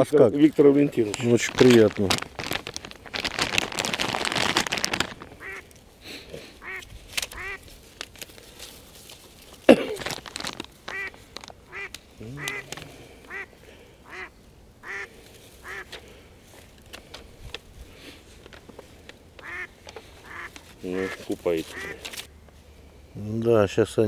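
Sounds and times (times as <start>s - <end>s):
geese calling: 5.1s - 5.8s, 6.6s - 7.7s, 10.8s - 16.3s, 19.4s - 22.5s.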